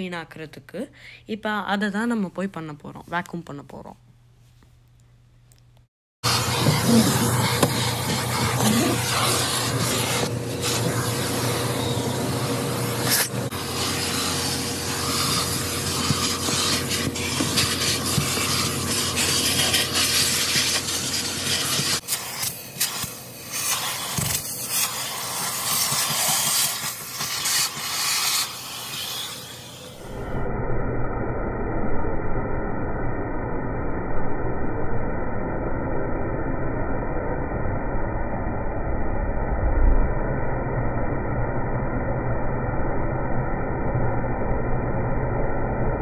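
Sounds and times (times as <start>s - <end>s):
vacuum hose sucking air: 6.2s - 30.5s
low hum: 29.7s - 46.0s.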